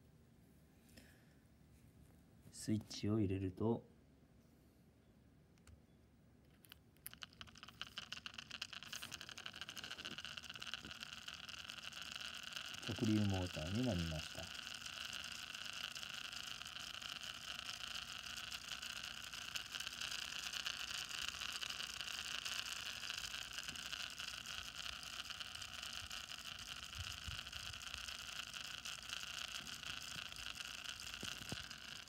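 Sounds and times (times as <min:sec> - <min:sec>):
small motor buzzing whir: 0:07.0 - 0:32.0.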